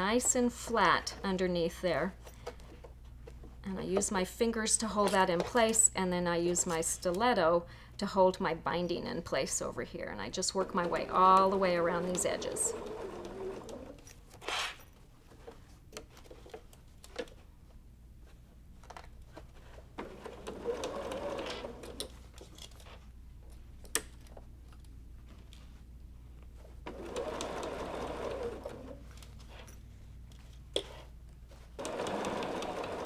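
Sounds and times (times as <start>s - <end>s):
sewing machine stitching: 10.5s - 14.0s, 20.0s - 22.1s, 26.9s - 29.0s, 31.8s - 33.0s.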